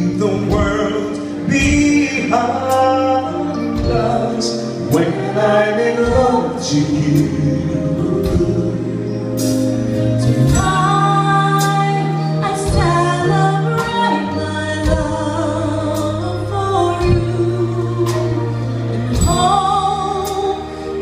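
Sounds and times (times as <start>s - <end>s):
woman and man singing duet: 0.0s - 9.2s, 10.2s - 21.0s
live band playing: 0.0s - 21.0s.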